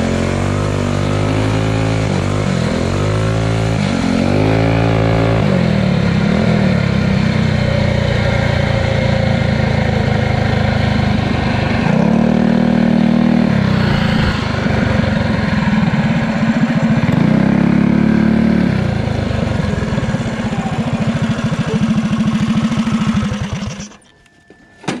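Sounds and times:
motorbike engine revving: 0.0 - 24.0.

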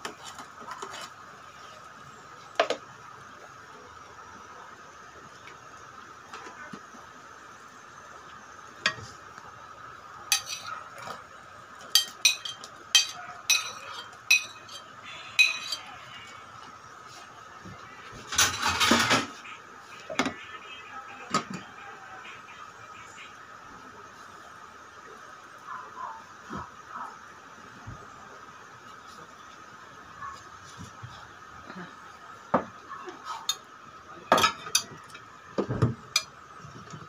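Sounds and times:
metal spoon clinking on pot: 10.3 - 10.7, 11.9 - 15.9.

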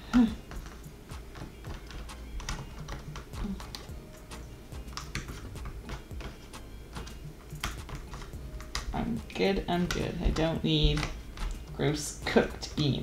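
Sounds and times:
puzzle pieces clicking and tapping: 0.1 - 3.9, 4.9 - 8.9.

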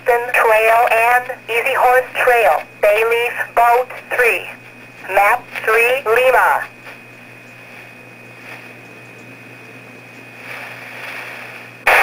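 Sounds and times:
loud static burst: 0.0 - 6.7, 10.4 - 12.0
faint radio hiss: 0.0 - 12.0.

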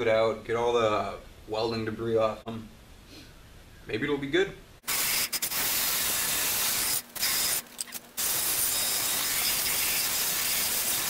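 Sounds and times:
drill grinding metal: 4.9 - 11.0.

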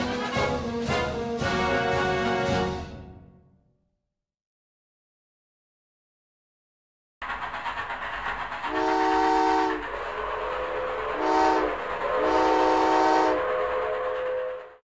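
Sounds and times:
steam locomotive chugging: 0.0 - 2.7, 7.2 - 14.8
steam whistle blasts: 8.7 - 9.8, 11.0 - 14.6.

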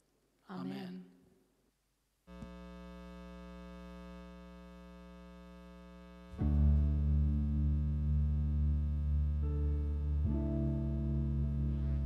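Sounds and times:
deep bass: 6.3 - 12.0
synthesizer chords: 6.3 - 12.0.

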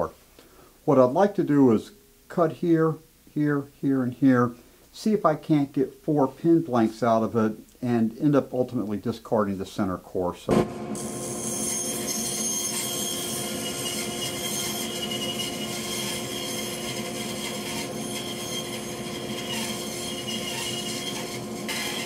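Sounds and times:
band saw whine: 10.5 - 22.0
blade rasping through seed pod: 13.8 - 22.0.

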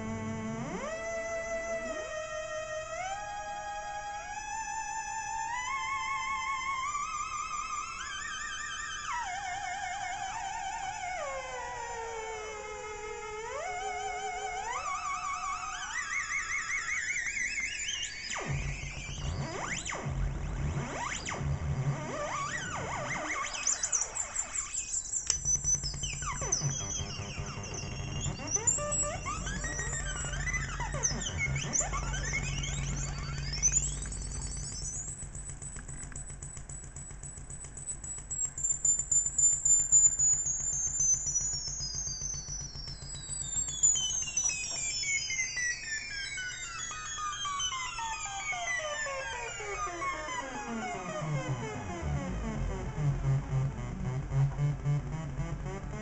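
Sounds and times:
warbling electronic synth tone: 17.5 - 45.3, 49.8 - 56.0
pulsing low buzz: 25.3 - 37.0, 51.3 - 56.0.

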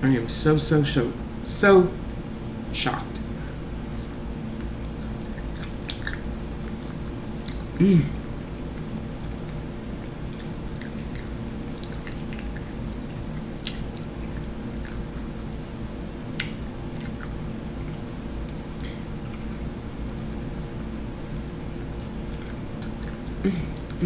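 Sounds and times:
low hum and hiss: 0.0 - 24.0
person chewing: 3.9 - 15.6, 16.2 - 20.9, 21.8 - 24.0.

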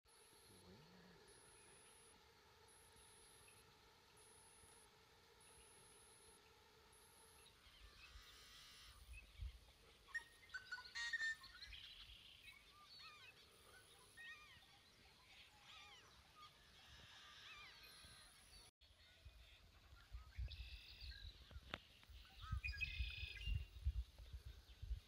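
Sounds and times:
faint steady hum: 0.1 - 10.6.

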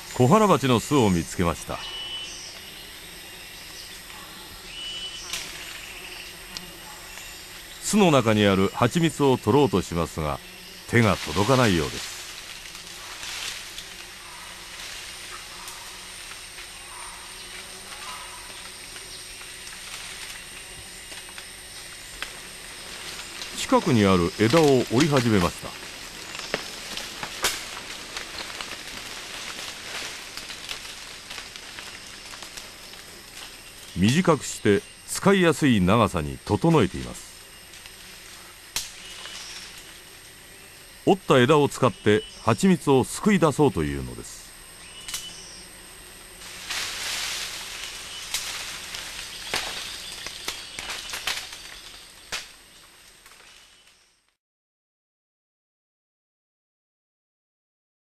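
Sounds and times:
leaves rustling: 0.0 - 54.0
twigs crackling and snapping: 5.2 - 7.4, 10.8 - 34.3, 37.4 - 40.3, 44.8 - 45.5, 46.4 - 54.0.

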